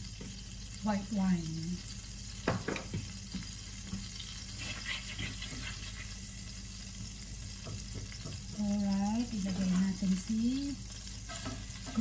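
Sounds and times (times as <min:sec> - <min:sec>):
butter sizzling in a pan: 0:00.0 - 0:12.0
wooden spatula scraping a pan: 0:04.5 - 0:06.3, 0:11.2 - 0:12.0.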